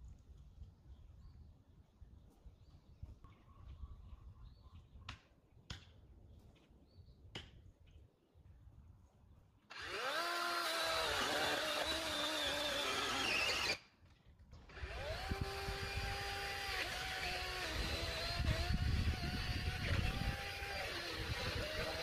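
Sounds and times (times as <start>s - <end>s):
chainsaw motor whining: 9.7s - 13.8s, 14.7s - 22.0s.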